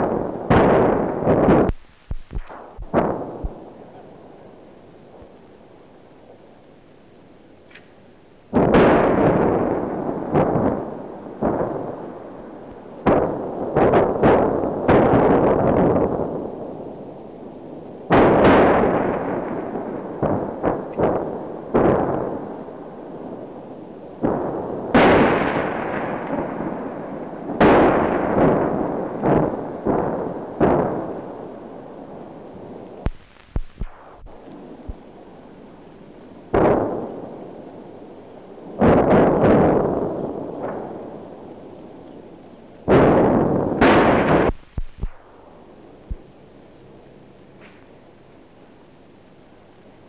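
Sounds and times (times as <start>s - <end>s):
blasts: 0.0s - 5.4s, 8.5s - 16.6s, 18.1s - 23.5s, 24.2s - 35.8s, 36.4s - 42.0s, 42.8s - 46.5s.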